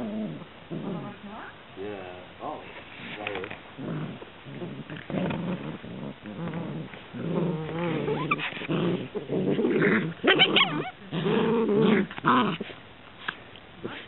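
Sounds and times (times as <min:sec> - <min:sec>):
dogs growling: 0:00.0 - 0:01.4, 0:03.3 - 0:12.8
puppy yelp: 0:10.3 - 0:11.0.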